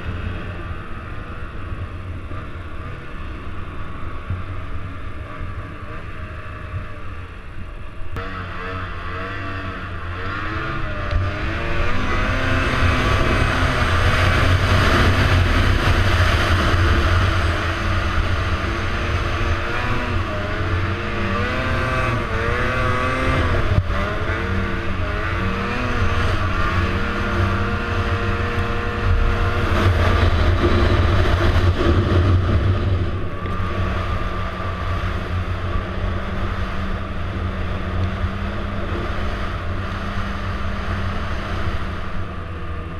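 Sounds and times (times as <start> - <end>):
snowmobile engine revving: 8.2 - 42.9.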